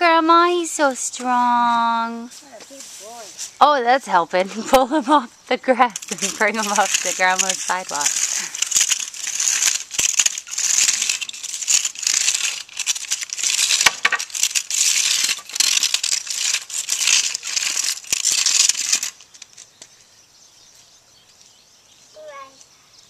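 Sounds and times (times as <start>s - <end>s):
push broom scraping concrete: 5.7s - 19.2s.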